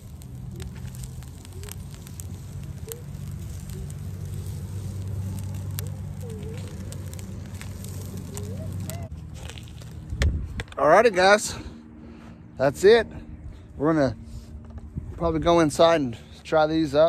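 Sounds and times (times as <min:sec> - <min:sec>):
fish sizzling on foil: 0:00.0 - 0:10.1
coals crackling and popping: 0:00.0 - 0:11.6
wind rumble on microphone: 0:09.8 - 0:10.8, 0:14.6 - 0:15.7.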